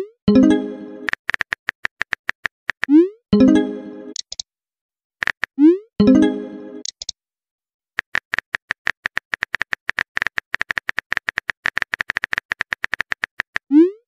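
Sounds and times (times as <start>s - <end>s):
simulated keyboard typing clicks: 4.1s - 4.5s, 6.8s - 7.2s.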